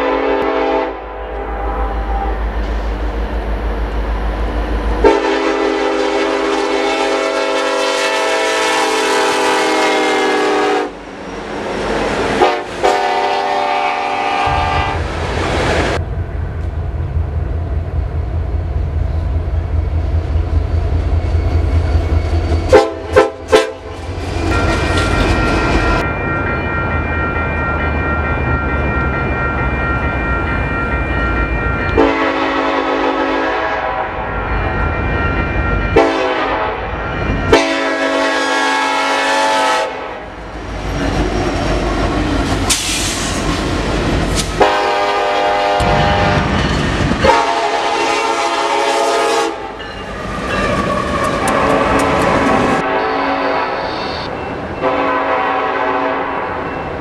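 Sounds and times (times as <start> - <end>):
train air horn blasts: 0.0 - 2.5, 5.0 - 11.0, 12.4 - 15.1, 22.7 - 23.9, 32.0 - 34.3, 35.9 - 36.9, 37.5 - 40.4, 44.5 - 46.6, 47.2 - 49.8, 51.0 - 56.6
locomotive rumble on rails: 0.0 - 57.0.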